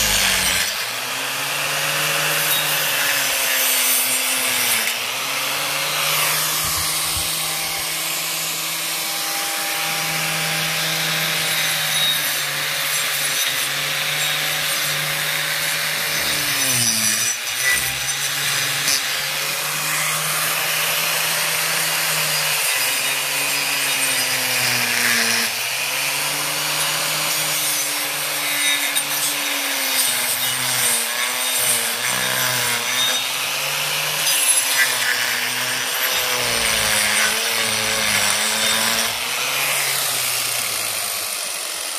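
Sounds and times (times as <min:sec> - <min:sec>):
angle grinder motor whine: 0:00.0 - 0:29.6
disc grinding wood: 0:00.0 - 0:41.9.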